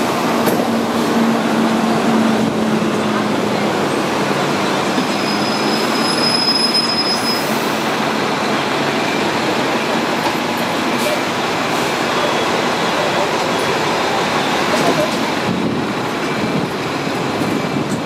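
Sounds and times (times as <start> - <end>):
tram wheels rumbling on track: 0.0 - 18.0
high squeal: 4.9 - 7.8.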